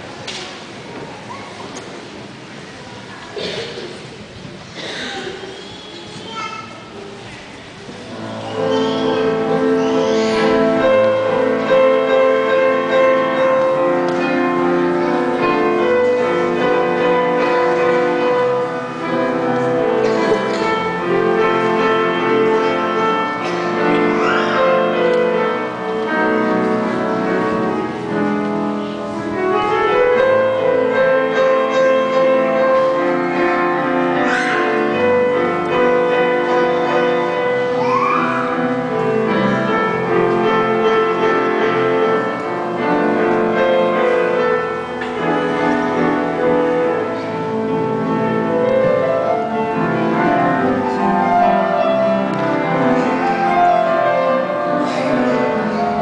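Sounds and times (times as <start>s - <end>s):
piano duet: 0.0s - 56.0s.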